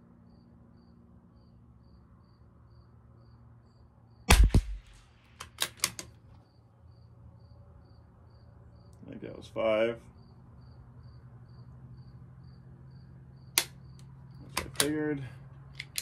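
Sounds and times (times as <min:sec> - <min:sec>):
cricket chirping: 0:00.0 - 0:05.2, 0:06.1 - 0:16.0
rifle shot: 0:04.3 - 0:05.9
rifle bolt clicks: 0:04.3 - 0:06.2, 0:13.6 - 0:15.0, 0:15.8 - 0:16.0.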